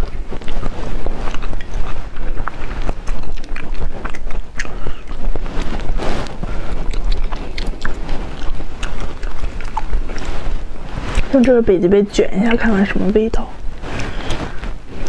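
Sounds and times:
wet chewing and lip smacks: 0:00.0 - 0:11.6.

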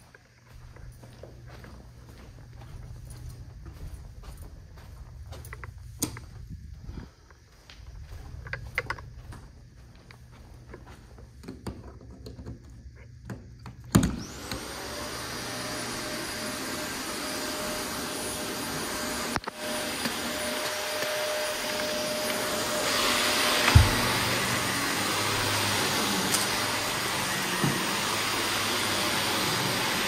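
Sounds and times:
handling knocks and clicks: 0:05.4 - 0:06.4
vacuum cleaner motor whining: 0:08.0 - 0:30.0
vacuum cleaner switch thump: 0:23.6 - 0:24.2.

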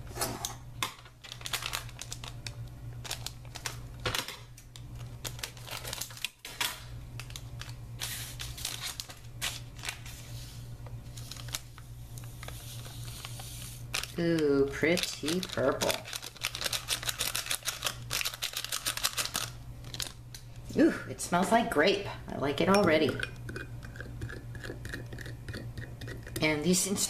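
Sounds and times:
steady low hum: 0:00.0 - 0:27.0
plastic sachet crinkling: 0:01.2 - 0:04.1, 0:04.7 - 0:10.2, 0:11.1 - 0:20.5.

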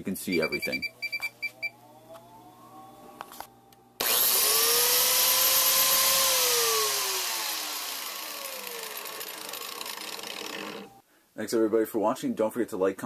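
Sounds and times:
power tool motor whine: 0:01.6 - 0:03.4, 0:04.0 - 0:11.0.

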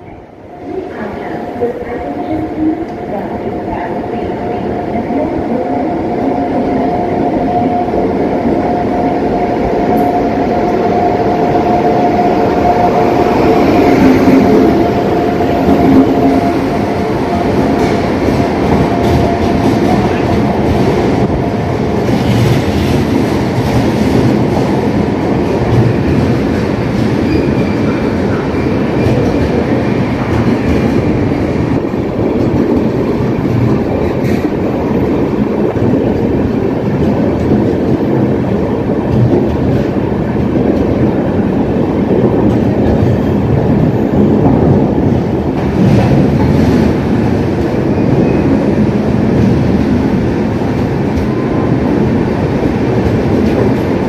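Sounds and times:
train rumble: 0:00.0 - 0:54.0.

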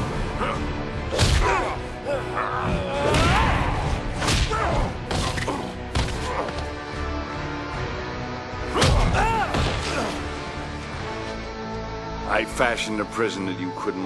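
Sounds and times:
grunts and shouts: 0:00.0 - 0:06.8, 0:08.7 - 0:10.3
dramatic music: 0:00.0 - 0:14.0
punches and heavy impacts: 0:01.1 - 0:01.8, 0:02.6 - 0:06.7, 0:08.7 - 0:10.2.

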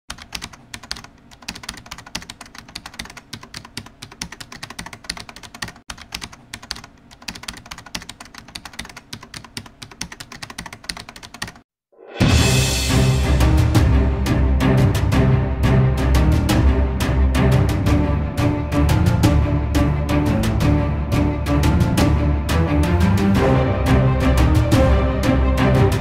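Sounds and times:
rapid keyboard typing: 0:00.1 - 0:11.7
music: 0:11.9 - 0:26.0.

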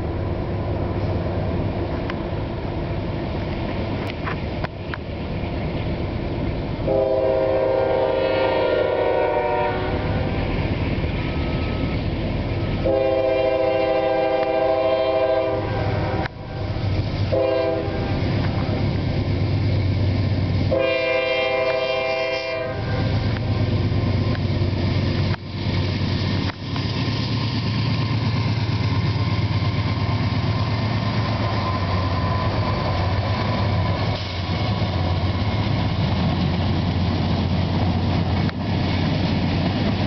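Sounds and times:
low rumble of diesel engines: 0:00.0 - 0:40.0
locomotive air horn blasts: 0:06.9 - 0:10.4, 0:12.8 - 0:16.7, 0:17.3 - 0:18.2, 0:20.7 - 0:23.2.

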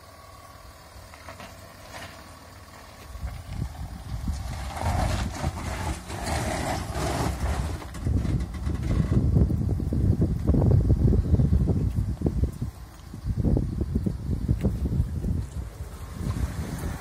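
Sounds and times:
pickup engine running low: 0:00.0 - 0:17.0
tyres grinding over gravel: 0:00.7 - 0:10.6, 0:14.8 - 0:17.0.

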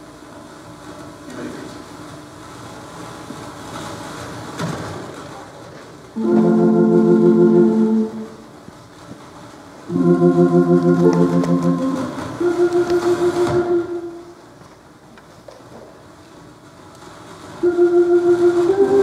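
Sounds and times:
organ playing sustained chords: 0:06.2 - 0:08.6, 0:09.9 - 0:14.4, 0:17.6 - 0:19.0.

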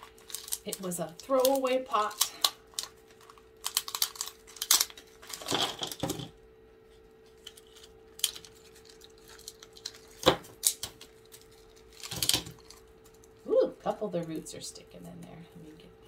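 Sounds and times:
shredded paper rustling: 0:00.0 - 0:06.1, 0:06.9 - 0:13.4
plastic pot crackling and snapping: 0:00.0 - 0:06.3, 0:07.3 - 0:13.4.

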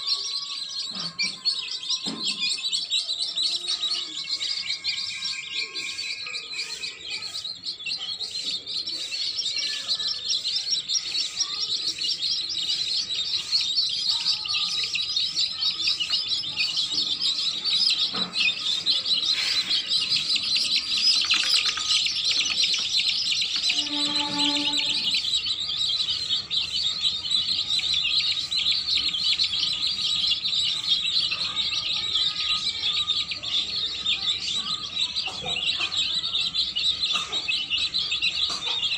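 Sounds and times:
baby chicks peeping: 0:00.0 - 0:38.9.

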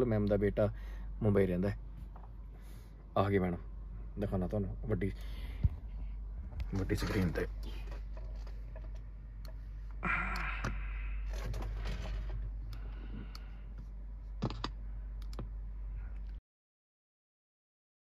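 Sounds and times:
steady low hum: 0:00.0 - 0:16.4
laptop keyboard and trackpad clicks: 0:14.4 - 0:15.5.

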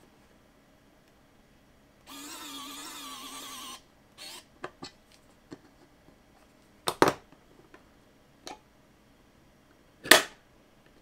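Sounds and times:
electric screwdriver motor whining: 0:02.1 - 0:04.5.

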